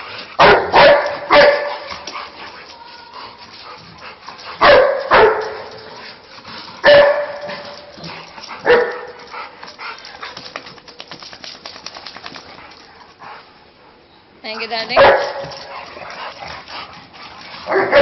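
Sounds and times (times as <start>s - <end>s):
dog barking: 0.4s - 1.9s, 4.6s - 5.6s, 6.8s - 7.4s, 8.6s - 9.1s, 15.0s - 15.5s, 17.7s - 18.0s.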